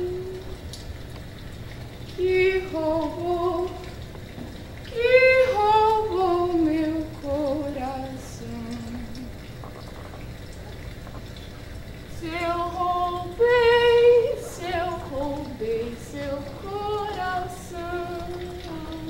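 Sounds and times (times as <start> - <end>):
woman singing unaccompanied: 0.0 - 0.6, 2.1 - 4.0, 4.9 - 9.4, 12.1 - 19.0.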